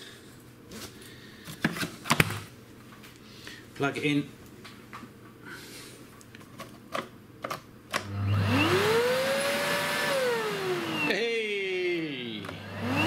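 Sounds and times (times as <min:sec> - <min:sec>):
vacuum cleaner motor whine: 0:08.0 - 0:13.0.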